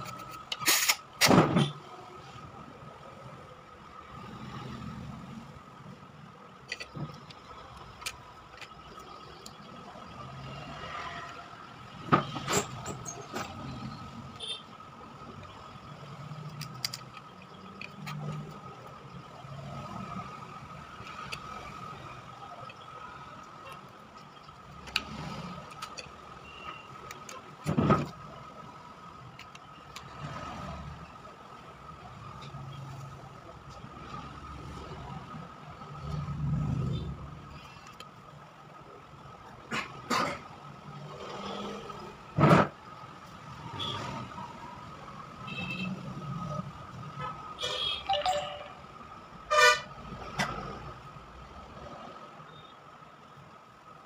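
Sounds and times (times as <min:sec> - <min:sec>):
phone parts clicking and knocking: 0:00.0 - 0:01.7, 0:06.5 - 0:10.1, 0:16.3 - 0:19.2, 0:20.7 - 0:21.7, 0:22.6 - 0:28.2, 0:29.2 - 0:30.1.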